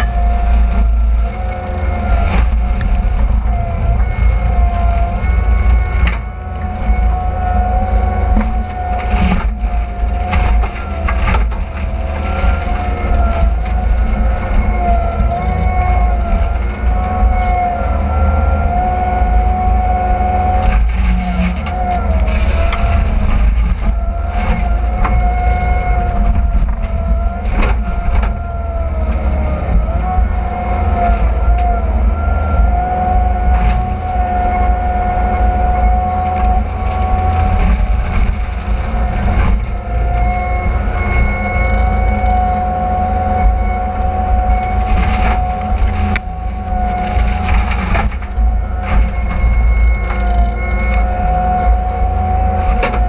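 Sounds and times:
deep diesel rumble: 0.0 - 53.0
mulcher high whine: 0.0 - 53.0
wood cracking and crunching: 0.0 - 53.0.

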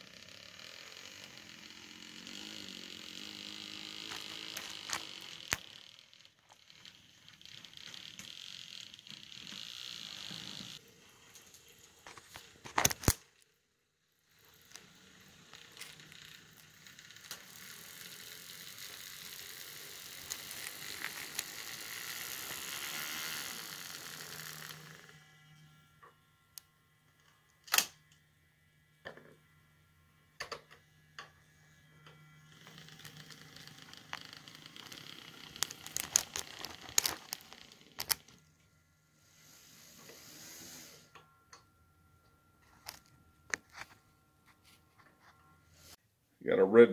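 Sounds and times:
model train wheel and motor noise: 0.0 - 44.0.

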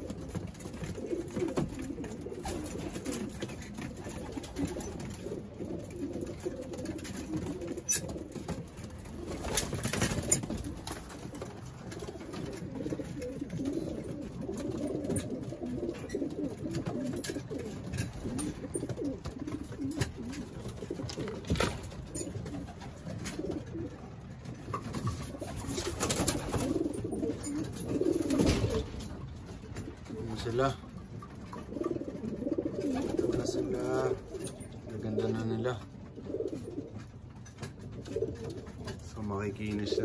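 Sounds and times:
pigeons cooing: 0.0 - 40.0.

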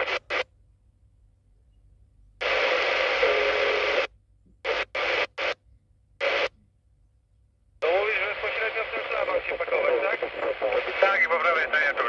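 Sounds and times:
radio static bursts: 0.0 - 0.5, 2.4 - 5.6, 6.2 - 6.5, 7.8 - 12.0.

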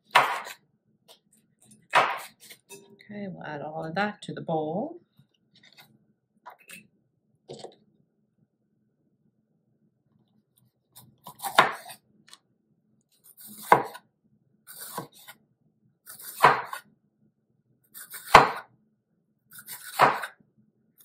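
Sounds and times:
knife slicing pepper on board: 0.1 - 0.6, 1.9 - 2.7, 11.0 - 12.0, 13.3 - 14.0, 14.7 - 15.3, 16.1 - 16.8, 18.0 - 18.7, 19.6 - 20.4.

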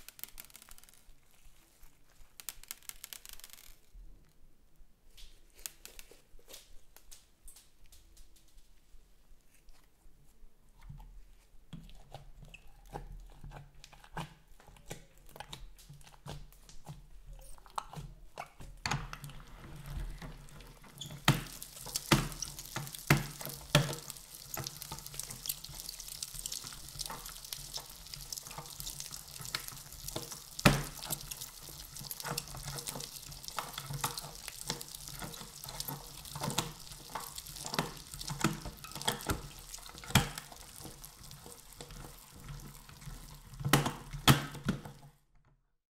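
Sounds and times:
slime squelching through meat grinder: 11.8 - 45.1.

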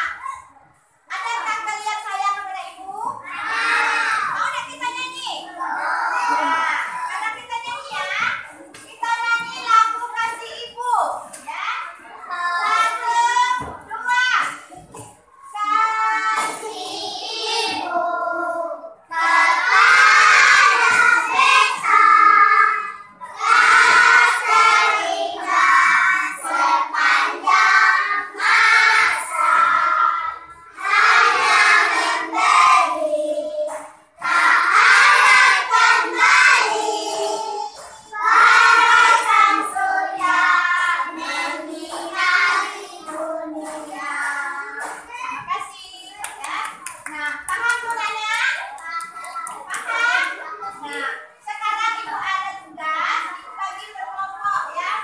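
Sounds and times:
children singing in unison: 3.3 - 4.4, 5.5 - 6.7, 15.6 - 45.0.

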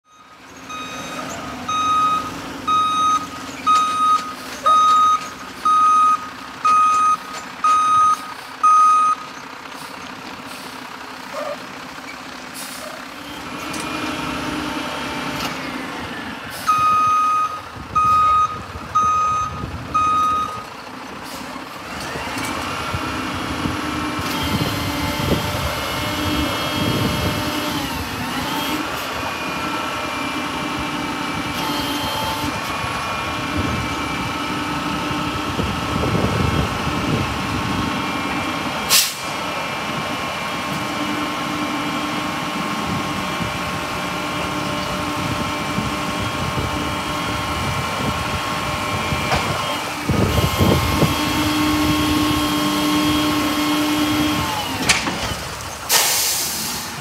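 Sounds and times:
truck reversing alarm beeping: 0.0 - 10.0, 16.6 - 20.7
diesel engine idling: 0.1 - 57.0
hydraulic hoist whine: 23.9 - 39.4, 44.3 - 57.0.

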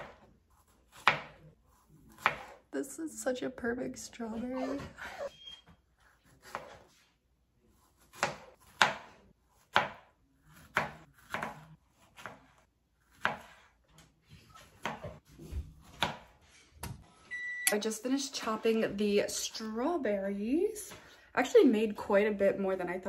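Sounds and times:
knife chopping on cutting board: 0.0 - 2.6, 6.0 - 7.0, 7.8 - 13.7, 14.6 - 16.9.

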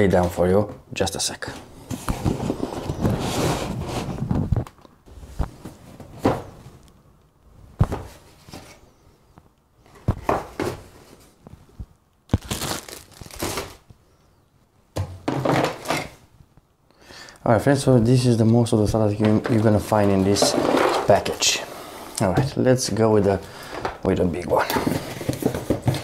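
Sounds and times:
cardboard boxes rustling and knocking: 1.8 - 6.8, 9.9 - 11.4, 15.0 - 16.2, 23.7 - 26.0
plastic wrap crinkling: 12.3 - 13.9.

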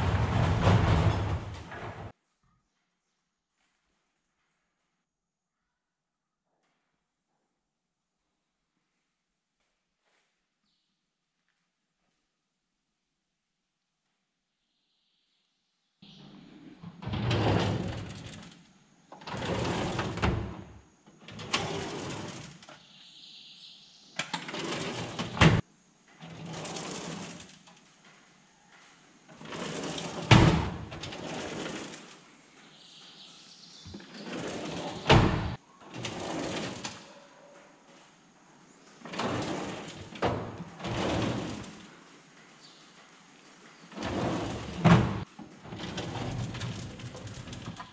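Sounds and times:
metal drawers sliding on runners: 29.4 - 32.1.

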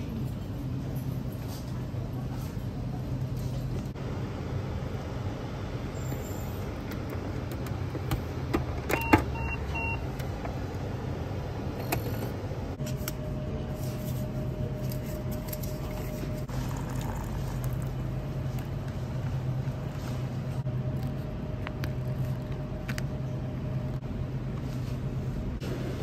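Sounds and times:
beeps: 8.9 - 10.0.

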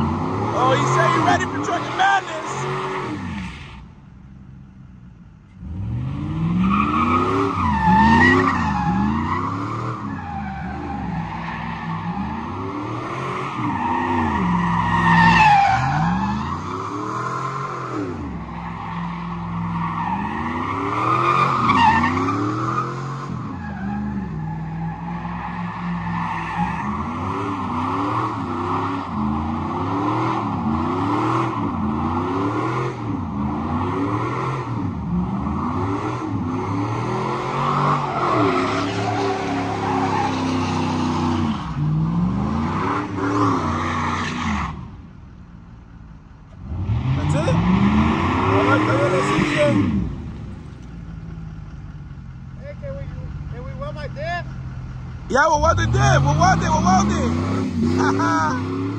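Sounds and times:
truck engine revving: 0.0 - 3.5, 5.6 - 44.8, 46.5 - 58.9
tyres squealing on pavement: 0.5 - 3.8, 6.7 - 12.4, 13.5 - 27.8, 37.6 - 41.8, 47.2 - 50.0.

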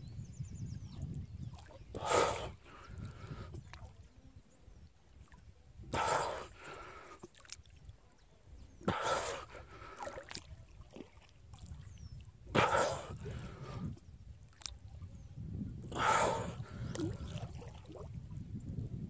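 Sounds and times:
water lapping: 1.5 - 18.4
water sloshing and splashing: 2.9 - 4.1, 5.1 - 15.2, 16.6 - 18.4.

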